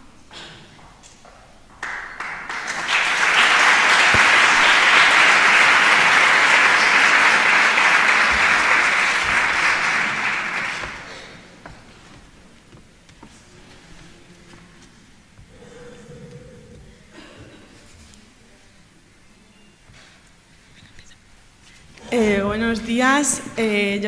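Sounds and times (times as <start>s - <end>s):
audience applauding: 1.8s - 11.4s.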